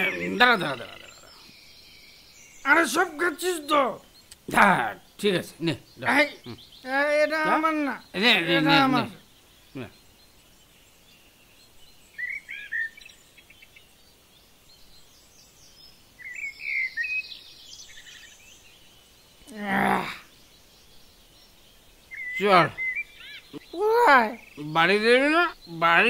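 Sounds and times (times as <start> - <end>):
pitched vocal sound: 0.0 - 1.2, 8.2 - 9.2, 19.5 - 20.2
birds chirping: 0.0 - 26.0.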